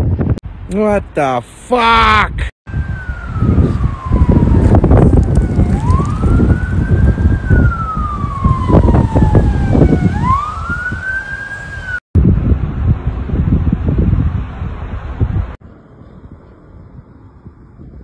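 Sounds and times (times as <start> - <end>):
wind rumble on microphone: 0.0 - 0.6, 2.3 - 18.0
siren wailing: 2.7 - 12.0.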